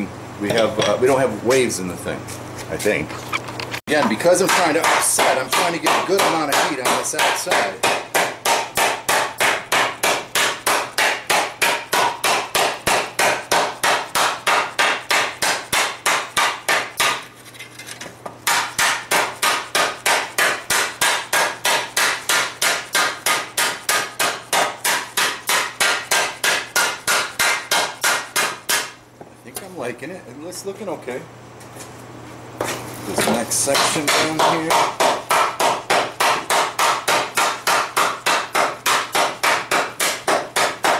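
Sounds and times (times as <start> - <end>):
hammer striking hot steel: 4.4 - 17.2, 18.5 - 29.0.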